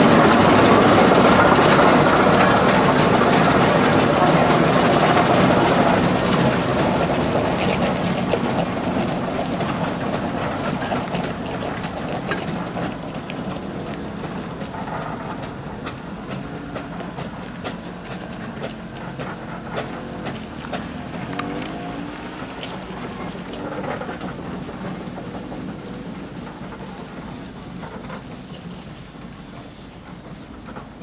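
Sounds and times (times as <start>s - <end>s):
steam locomotive mechanical clatter: 0.0s - 31.0s.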